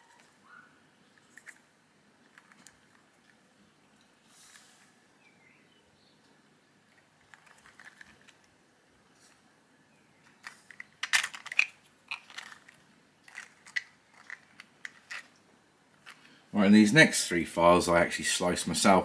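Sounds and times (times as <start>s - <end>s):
plastic figure clicks and clacks: 10.3s - 15.3s.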